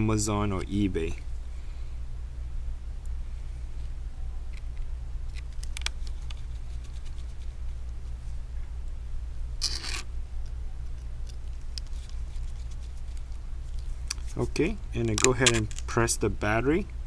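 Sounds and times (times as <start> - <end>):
steady low hum: 0.0 - 17.0
screwdriver clicking and scraping metal: 9.6 - 10.0.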